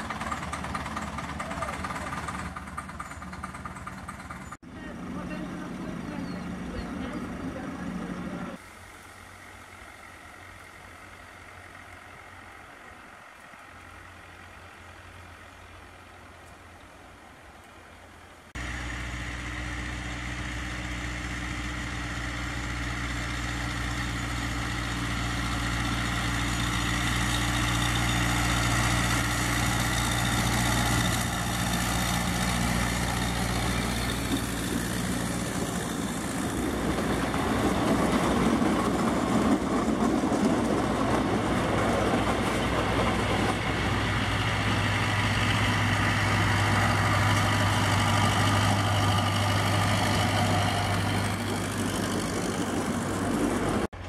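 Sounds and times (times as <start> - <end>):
wagon wheels rattling on rails: 0.0 - 8.6, 22.6 - 54.0
diesel locomotive engine hum: 0.0 - 54.0.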